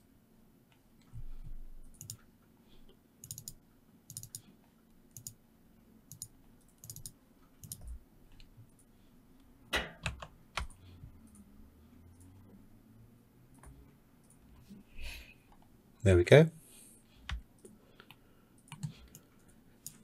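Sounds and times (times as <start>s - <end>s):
computer mouse clicking: 1.8s - 2.3s, 2.9s - 5.4s, 6.1s - 11.5s, 12.1s - 12.6s, 13.5s - 14.8s, 17.2s - 20.0s.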